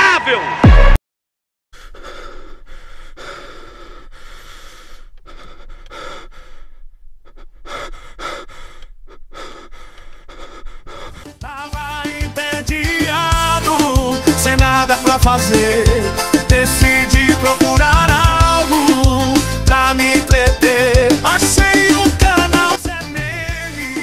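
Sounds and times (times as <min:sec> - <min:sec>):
person breathing hard: 0:01.7 - 0:11.4.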